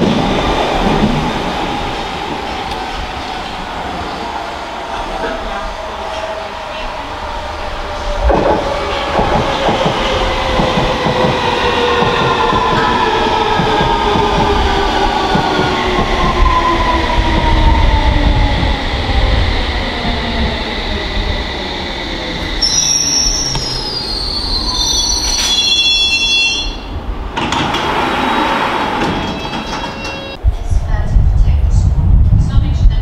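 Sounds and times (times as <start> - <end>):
wheel and brake squeal: 22.6 - 26.8.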